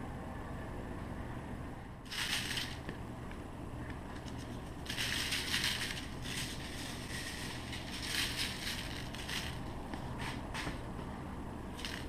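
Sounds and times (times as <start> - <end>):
steady low hum: 0.0 - 12.0
shaker grains rattling: 2.1 - 2.9, 4.2 - 9.8, 11.8 - 12.0.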